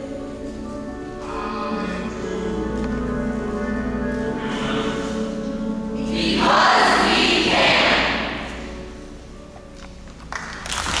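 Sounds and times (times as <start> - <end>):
choir holding a chord: 0.0 - 9.4
audience applause: 10.3 - 11.0.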